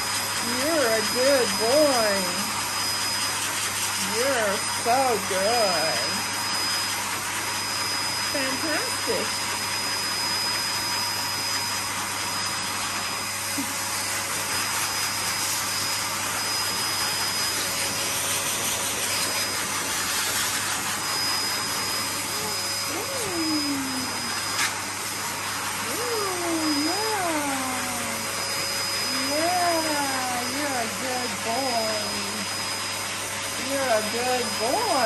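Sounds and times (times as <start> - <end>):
pet dryer blowing air: 0.0 - 35.0.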